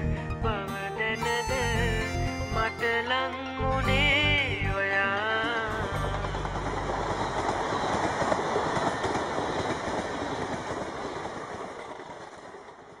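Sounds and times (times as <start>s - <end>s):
train running on rails: 3.9s - 13.0s.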